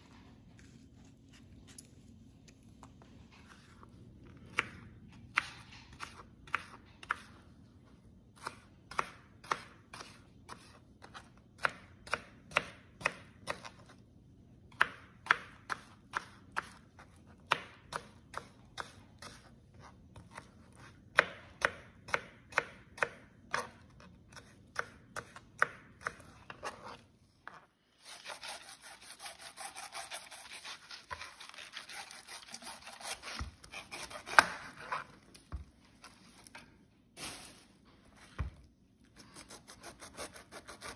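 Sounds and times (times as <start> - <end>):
knife chopping on plastic board: 8.4 - 13.9, 14.7 - 19.4, 20.2 - 35.7
knife sawing through pineapple: 28.0 - 35.0, 39.4 - 40.9.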